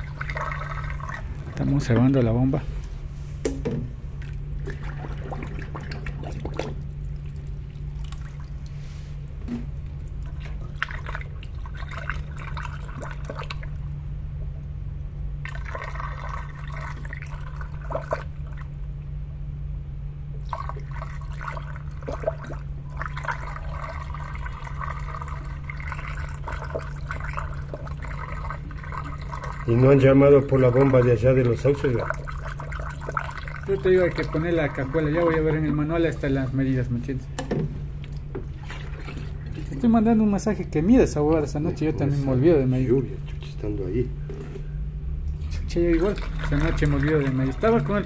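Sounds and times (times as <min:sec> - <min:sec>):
water pouring and trickling: 0:00.0 - 0:01.9, 0:10.0 - 0:13.8, 0:15.4 - 0:18.7, 0:20.4 - 0:36.4, 0:45.3 - 0:48.0
steady low hum: 0:00.0 - 0:48.0.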